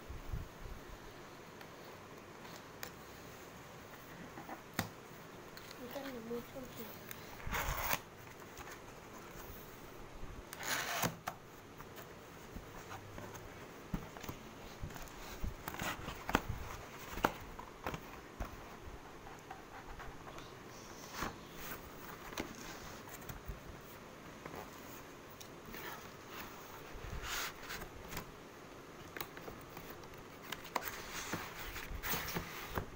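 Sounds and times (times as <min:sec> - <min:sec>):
cardboard scraping and rustling: 0:29.7 - 0:32.9.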